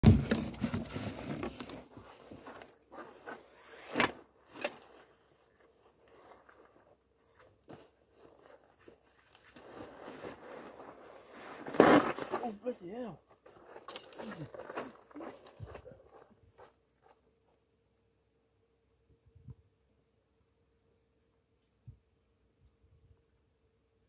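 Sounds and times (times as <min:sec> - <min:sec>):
fabric bag rustling and scraping: 0:00.2 - 0:12.6
zip: 0:03.0 - 0:05.1, 0:09.5 - 0:12.6.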